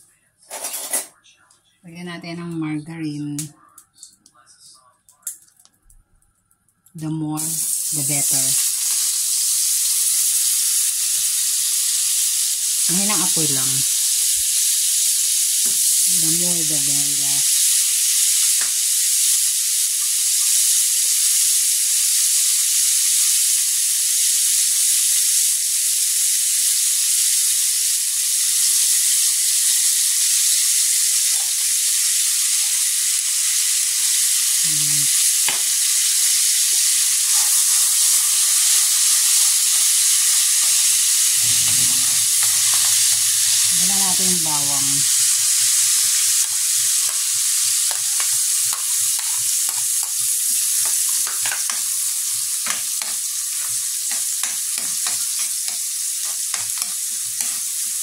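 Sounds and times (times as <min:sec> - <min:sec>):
margarine sizzling in a wok: 0:06.7 - 0:58.0.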